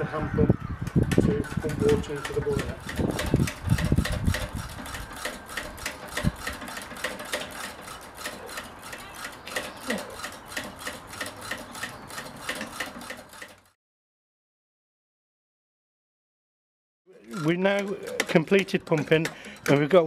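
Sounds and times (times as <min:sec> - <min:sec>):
hand feed pump clicking: 0:00.8 - 0:13.7, 0:17.2 - 0:20.0.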